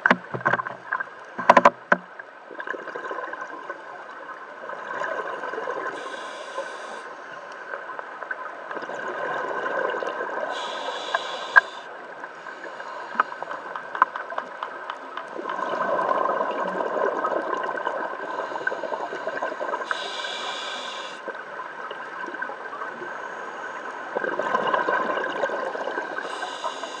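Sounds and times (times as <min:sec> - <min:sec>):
faint steady hum: 0:00.0 - 0:27.0
regulator hissing inhalations: 0:06.0 - 0:07.2, 0:10.5 - 0:13.6, 0:18.3 - 0:21.3, 0:26.2 - 0:27.0.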